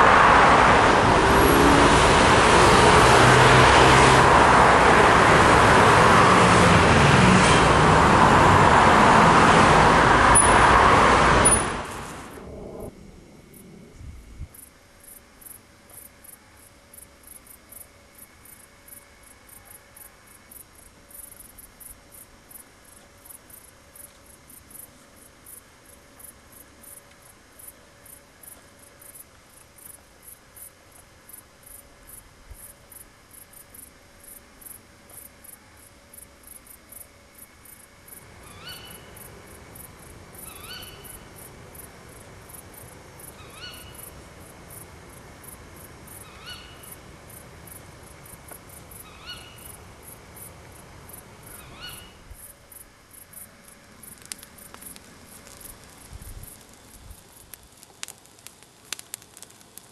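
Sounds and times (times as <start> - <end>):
low rushing noise: 0.0 - 14.6
crickets chirping: 8.3 - 59.9
animal call rising pitch: 12.3 - 14.0
crackling clicks: 54.0 - 59.9.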